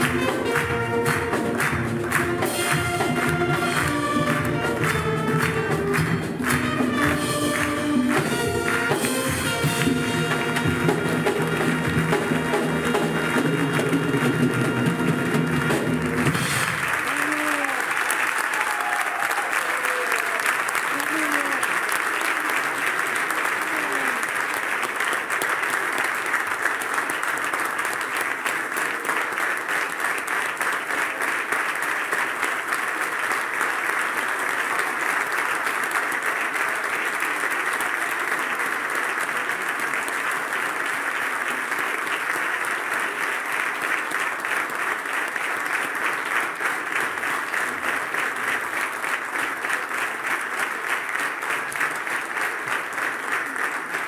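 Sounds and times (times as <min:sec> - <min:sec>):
audience applauding: 0:00.0 - 0:54.0.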